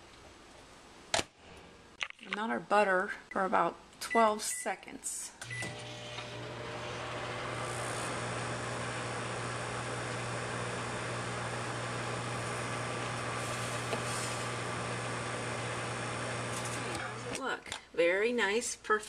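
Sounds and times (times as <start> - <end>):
microwave oven humming: 5.4 - 17.4.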